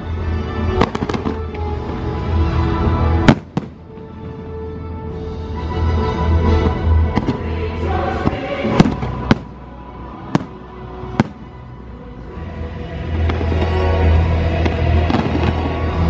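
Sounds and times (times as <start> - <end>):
show soundtrack music: 0.0 - 16.0
fireworks bursting: 0.6 - 4.4, 6.6 - 9.7, 10.3 - 11.6, 13.0 - 16.0
fireworks sharp bangs: 0.8 - 1.7, 3.2 - 4.1, 8.1 - 9.6, 10.3 - 11.5, 13.2 - 16.0.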